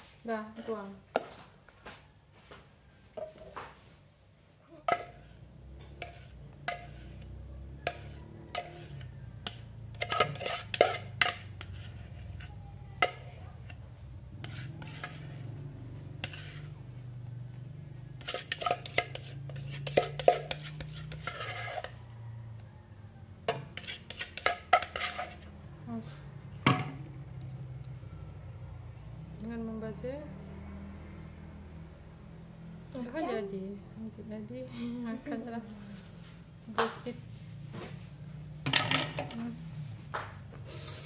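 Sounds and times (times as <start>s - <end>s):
spatula scraping mixing bowl: 4.9s - 13.8s, 14.4s - 16.9s, 18.1s - 22.1s, 23.5s - 25.5s
spatula tapping bowl rim: 6.0s - 13.4s, 18.2s - 21.5s.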